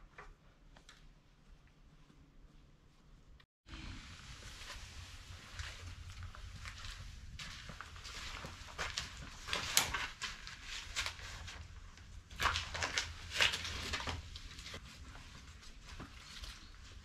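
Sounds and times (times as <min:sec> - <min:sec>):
footsteps on dry ground: 0:04.6 - 0:09.6
dry sticks clattering and crackling: 0:12.3 - 0:14.8.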